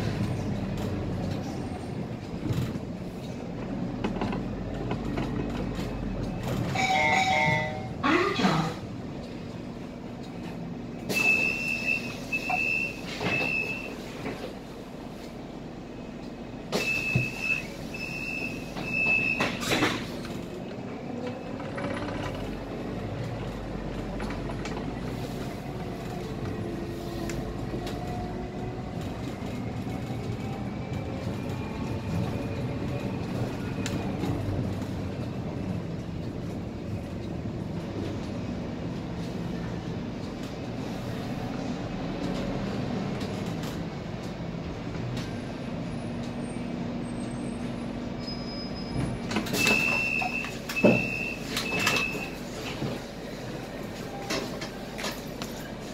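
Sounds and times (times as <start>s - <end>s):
diesel bus engine accelerating: 0.0s - 6.8s, 7.9s - 55.9s
high warning beeps: 49.6s - 52.4s.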